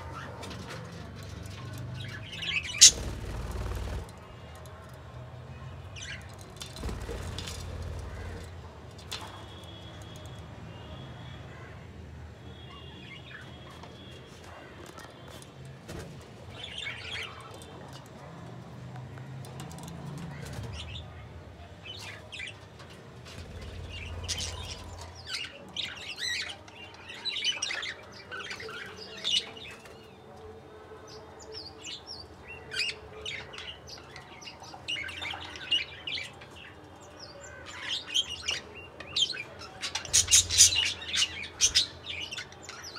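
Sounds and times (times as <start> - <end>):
budgerigars chirping: 2.6 - 3.2, 39.9 - 41.9.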